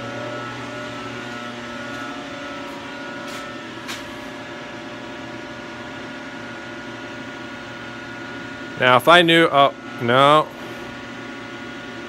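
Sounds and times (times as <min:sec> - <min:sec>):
electrical machinery hum: 0:00.0 - 0:12.0.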